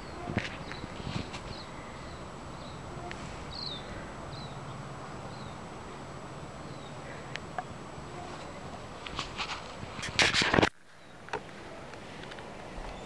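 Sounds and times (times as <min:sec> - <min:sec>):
small bird chirping: 0:00.0 - 0:07.3
low background hum: 0:00.0 - 0:13.0.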